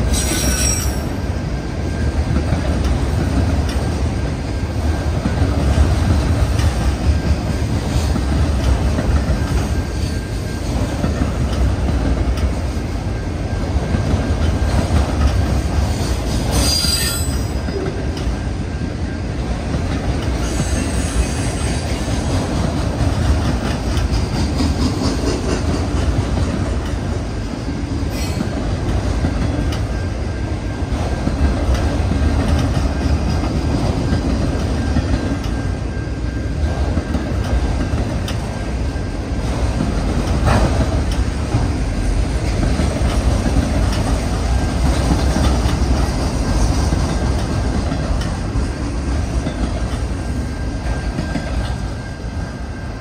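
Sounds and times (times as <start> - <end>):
clickety-clack over rail joints: 0.0 - 53.0
steel wheels rumbling on rail: 0.0 - 53.0
faint wheel squeal: 0.1 - 1.1.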